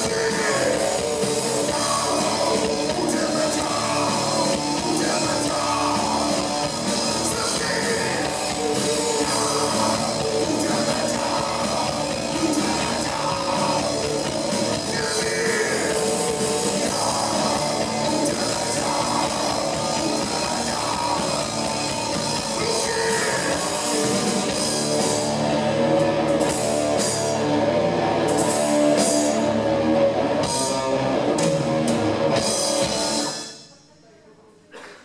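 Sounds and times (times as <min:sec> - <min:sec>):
person singing: 0:00.0 - 0:24.8
live rock band playing: 0:00.0 - 0:33.8.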